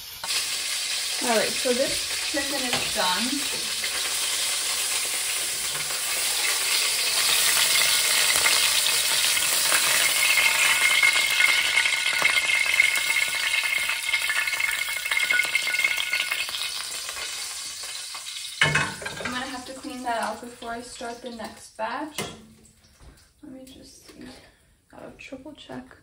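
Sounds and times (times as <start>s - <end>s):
chicken sizzling in hot oil: 0.0s - 21.9s.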